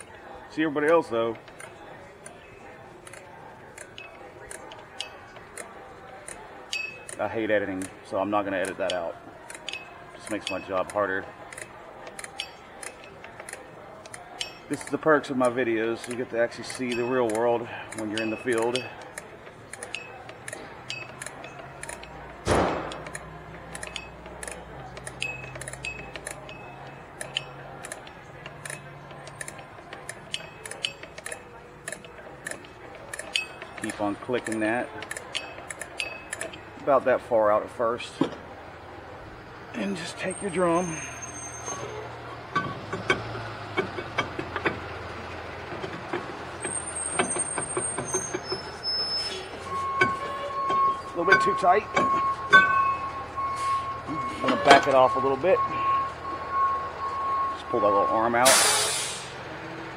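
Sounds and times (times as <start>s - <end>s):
brake adjuster clicking: 8.6s - 36.7s
brake drum metallic clicks and knocks: 19.9s - 26.5s
vehicle running low hum: 38.4s - 58.3s, 59.0s - 59.9s.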